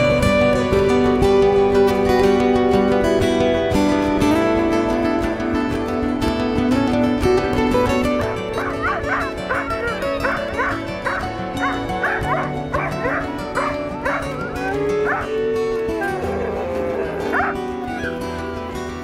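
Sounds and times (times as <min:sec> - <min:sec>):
background music: 0:00.0 - 0:19.0
dogs barking and yipping: 0:08.0 - 0:19.0.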